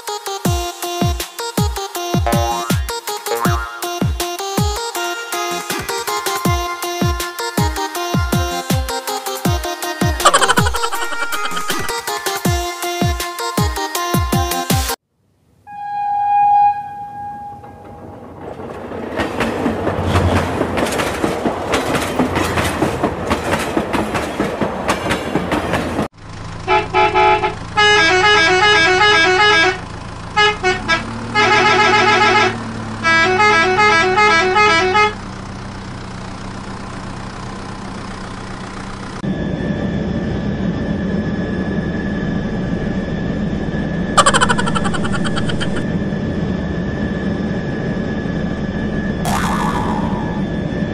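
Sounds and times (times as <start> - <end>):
electronic beeping tune: 2.2 - 4.2, 44.2 - 45.8
toy horn toot: 2.3 - 3.9, 30.4 - 35.2.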